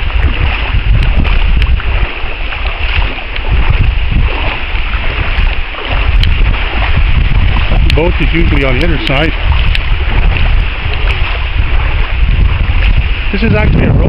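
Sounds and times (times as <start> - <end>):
water swishing around wading legs: 0.0 - 14.0
wind buffeting microphone: 0.0 - 14.0.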